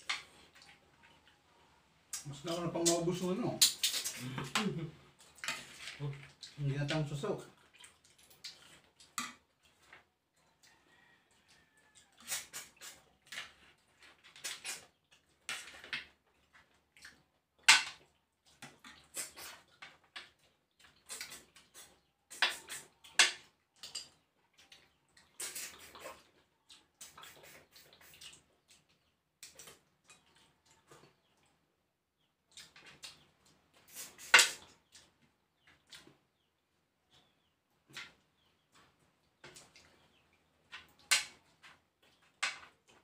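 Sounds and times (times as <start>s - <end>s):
wet sucking and slurping: 12.0s - 13.1s, 14.4s - 14.9s, 18.8s - 19.8s, 20.9s - 23.1s, 25.2s - 28.5s, 33.8s - 34.7s.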